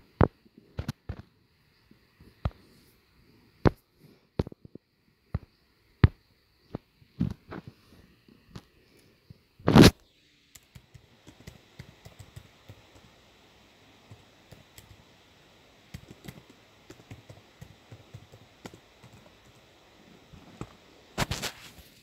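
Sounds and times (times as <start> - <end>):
low hiss: 0.0 - 22.0
faint clicking and tapping: 10.5 - 22.0.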